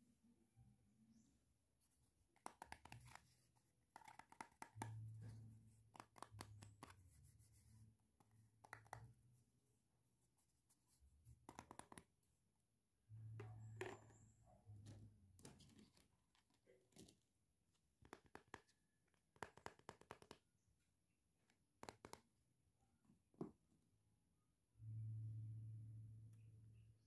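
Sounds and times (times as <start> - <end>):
plastic toys clicking and tapping: 18.1 - 18.8.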